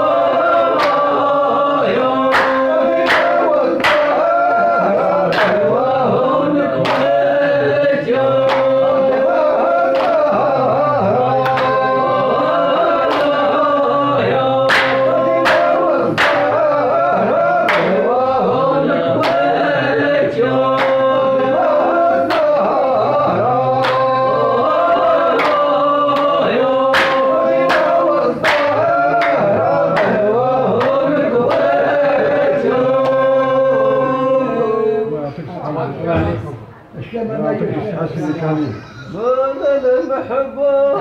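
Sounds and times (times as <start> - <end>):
men singing unaccompanied: 0.0 - 35.3, 39.1 - 41.0
sharp hand claps: 0.7 - 1.2, 2.2 - 4.5, 5.3 - 5.7, 6.8 - 7.3, 8.4 - 10.4, 11.4 - 12.0, 13.0 - 13.6, 14.6 - 16.8, 17.6 - 18.0, 19.2 - 19.5, 20.7 - 22.8, 23.8 - 31.8.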